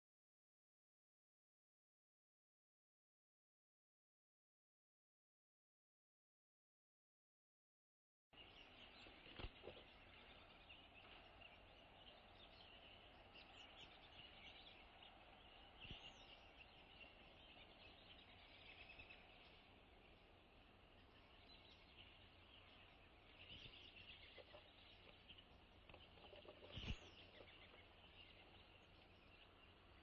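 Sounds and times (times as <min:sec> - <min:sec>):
distant small birds chirping: 0:08.4 - 0:30.0.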